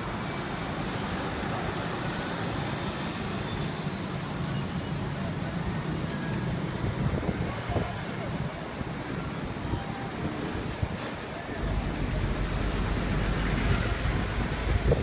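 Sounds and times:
scooters and vehicles passing: 0.0s - 15.0s
low engine rumble: 8.1s - 15.0s.

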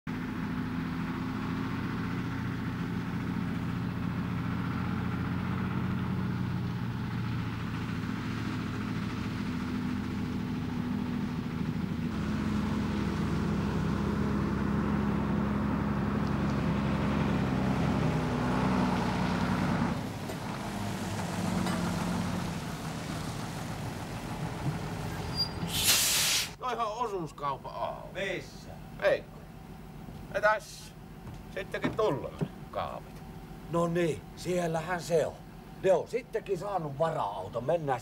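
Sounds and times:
truck engine running: 0.1s - 25.9s, 26.7s - 38.0s.

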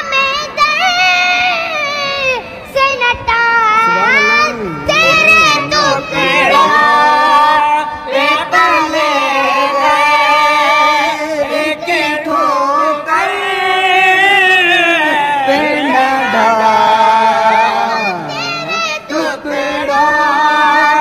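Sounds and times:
boy singing: 0.0s - 21.0s.

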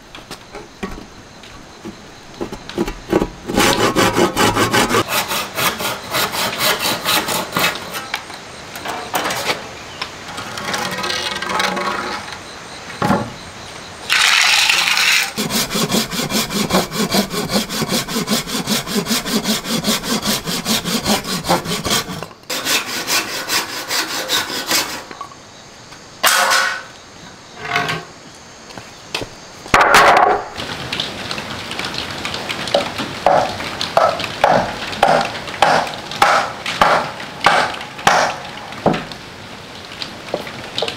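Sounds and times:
handsaw cutting wood: 3.1s - 8.0s, 14.1s - 25.1s.

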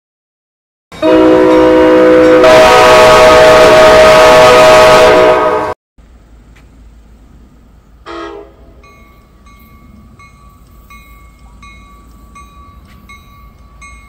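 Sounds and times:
train air horn: 1.0s - 5.8s, 8.0s - 8.8s.

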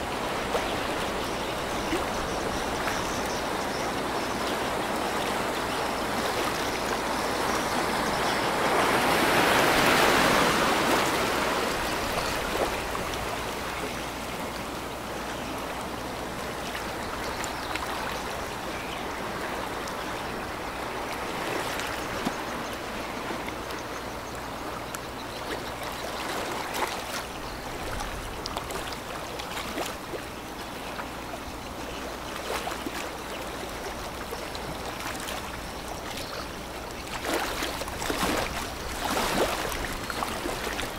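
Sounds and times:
water lapping: 0.0s - 40.9s
small splashes: 32.4s - 40.9s.

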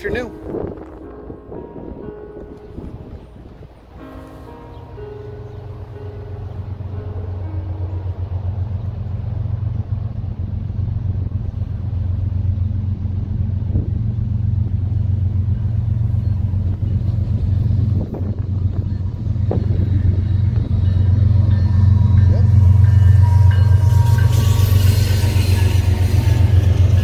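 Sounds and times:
diesel locomotive engine rumble: 0.0s - 27.0s.

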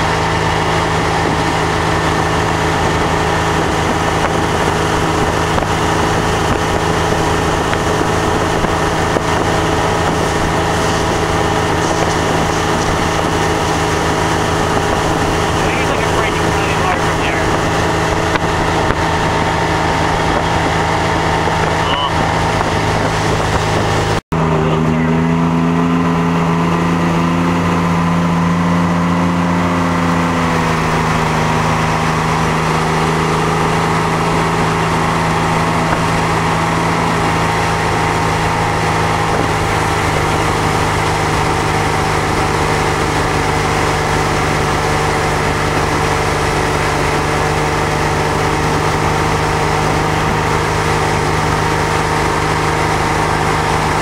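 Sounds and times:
churning wake water hiss: 0.0s - 25.2s, 26.0s - 54.0s
boat engine running: 0.0s - 54.0s.

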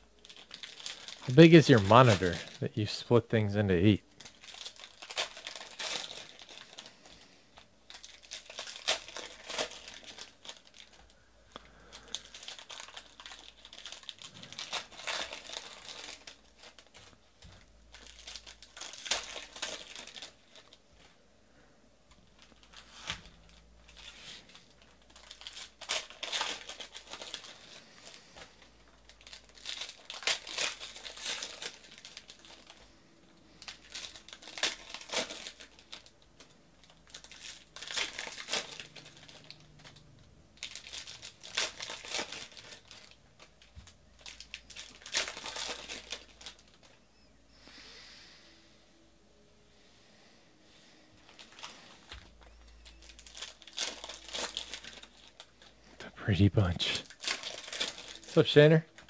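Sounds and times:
foil wrappers crinkling and tearing: 0.0s - 21.2s, 22.2s - 47.0s, 50.8s - 56.0s, 56.7s - 59.0s.

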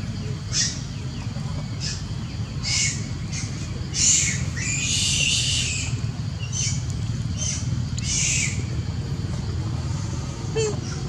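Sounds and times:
steady low rumble: 0.0s - 11.0s
baby monkey crying shrilly: 2.6s - 6.0s.

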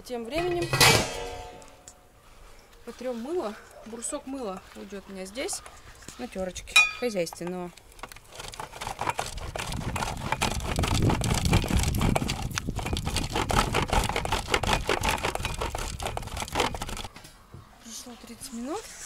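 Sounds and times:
soap grated on metal grater: 8.3s - 17.1s.

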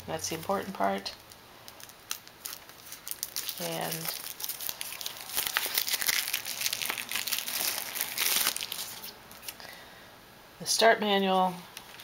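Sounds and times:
paper rustling and crinkling: 1.2s - 9.6s.

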